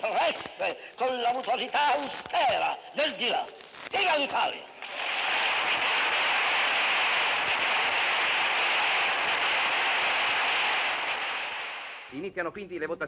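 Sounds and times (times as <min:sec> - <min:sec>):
crowd applauding: 0:04.8 - 0:12.1.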